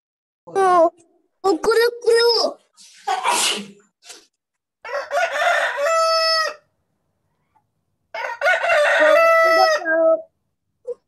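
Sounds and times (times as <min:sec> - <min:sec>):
rooster crowing: 0:04.8 - 0:06.7, 0:08.1 - 0:10.2.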